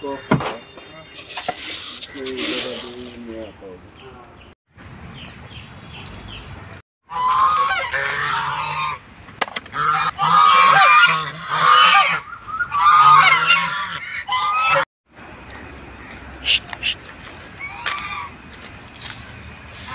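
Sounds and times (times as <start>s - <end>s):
geese honking: 7.1s - 9.0s, 9.7s - 14.8s.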